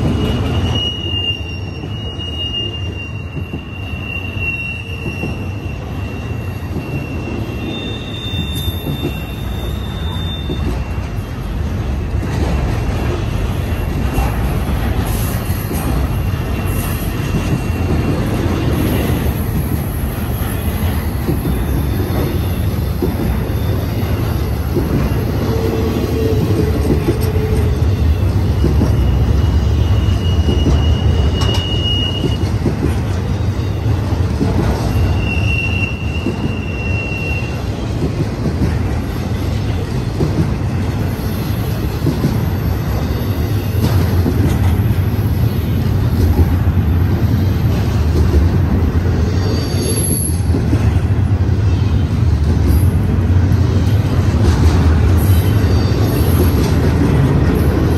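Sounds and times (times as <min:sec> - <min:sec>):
high-pitched wheel squeals: 0:00.0 - 0:11.3, 0:20.2 - 0:32.6, 0:34.8 - 0:37.9, 0:49.2 - 0:50.5, 0:55.2 - 0:56.6
low wheel squeal: 0:00.0 - 0:11.3, 0:20.2 - 0:32.7, 0:34.7 - 0:37.9, 0:49.2 - 0:50.5
steel wheels rumbling on rail: 0:00.0 - 0:57.9.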